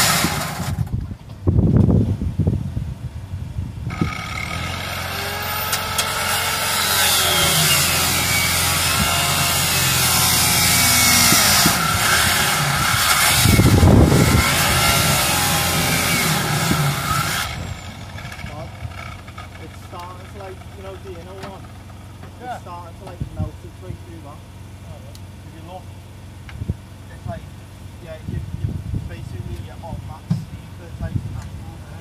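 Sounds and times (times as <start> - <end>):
power tool cutting metal: 0.0 - 0.8, 3.9 - 19.4
low rumble: 7.2 - 22.1.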